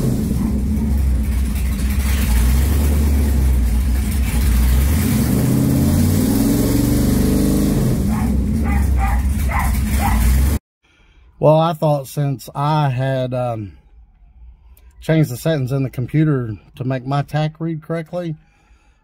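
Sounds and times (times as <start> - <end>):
car engine revving: 0.0 - 10.6.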